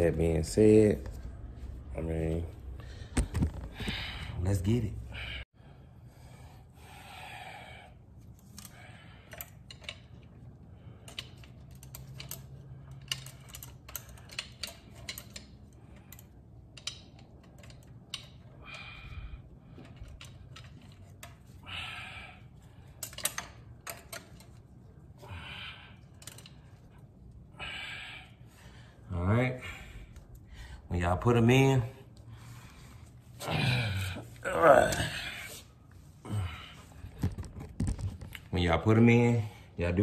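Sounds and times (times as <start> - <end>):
metal clutch plates clinking: 11.0 - 18.5
short breaths: 18.6 - 20.0, 21.4 - 23.0.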